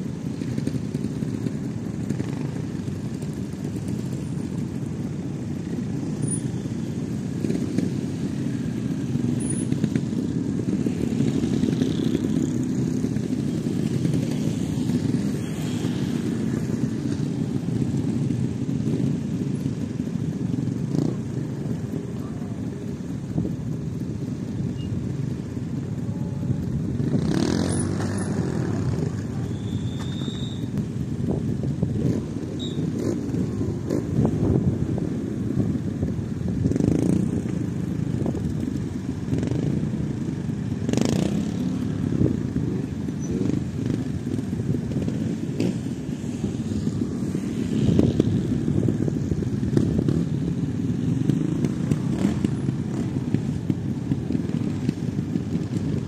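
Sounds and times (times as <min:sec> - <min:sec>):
motorcycle engines idling: 0:00.0 - 0:56.0
motorcycle throttle blips: 0:27.4 - 0:30.9, 0:32.0 - 0:34.0.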